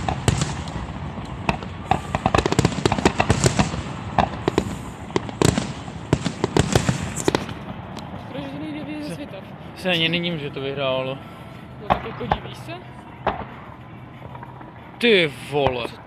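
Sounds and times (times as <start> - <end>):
fireworks bursting: 0.0 - 8.6, 11.8 - 15.8.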